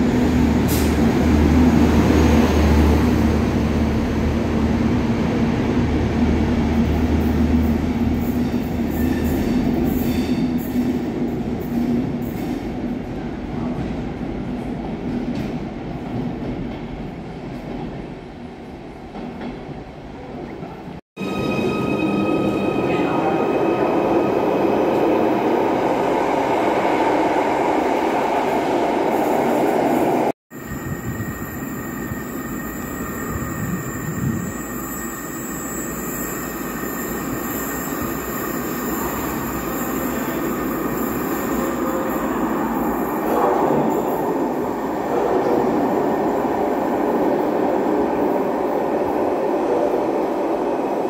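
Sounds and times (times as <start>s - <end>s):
train rumbling in tunnel: 0.0s - 51.0s
electric train whine: 30.5s - 46.7s.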